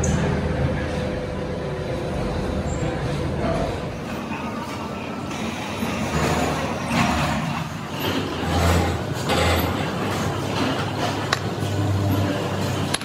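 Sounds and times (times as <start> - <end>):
low machinery rumble: 0.0 - 13.0.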